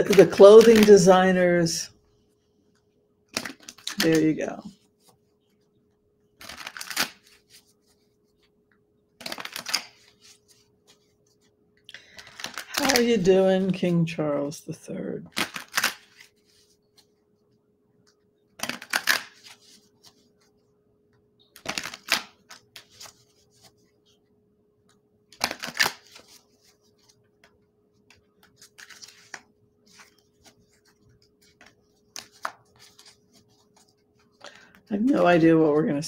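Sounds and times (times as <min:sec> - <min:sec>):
cards clicking and rustling: 0:00.0 - 0:01.1, 0:03.3 - 0:05.2, 0:06.4 - 0:07.7, 0:09.2 - 0:11.4, 0:12.0 - 0:13.3, 0:15.3 - 0:17.2, 0:18.0 - 0:20.5, 0:21.5 - 0:23.8, 0:25.3 - 0:34.4
cards being shuffled: 0:00.0 - 0:01.2, 0:03.3 - 0:05.3, 0:06.4 - 0:08.5, 0:09.2 - 0:13.9, 0:15.3 - 0:17.2, 0:18.0 - 0:20.5, 0:21.6 - 0:24.2, 0:25.3 - 0:34.4
faint steady hum: 0:00.0 - 0:36.0.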